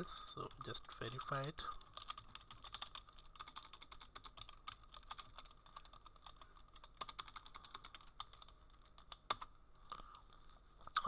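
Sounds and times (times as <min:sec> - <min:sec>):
keyboard typing: 0:01.6 - 0:09.5.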